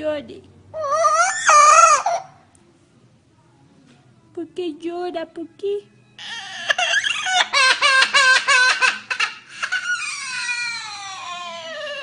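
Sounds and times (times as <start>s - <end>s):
parrot imitating crying baby: 0.8s - 2.4s, 6.2s - 12.0s.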